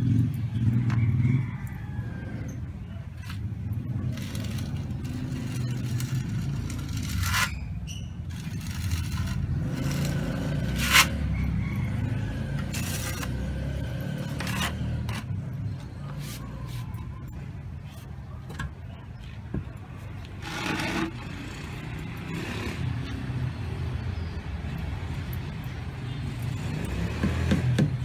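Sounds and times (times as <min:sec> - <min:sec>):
trowel scraping mortar: 0:04.0 - 0:11.3, 0:12.6 - 0:15.4, 0:16.0 - 0:16.9, 0:20.3 - 0:23.0.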